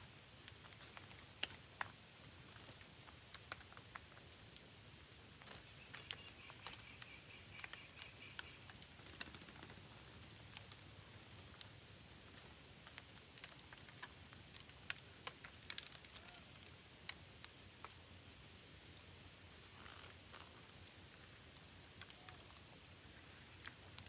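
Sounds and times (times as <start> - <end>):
parakeets clicking on a branch: 0.1 - 24.0.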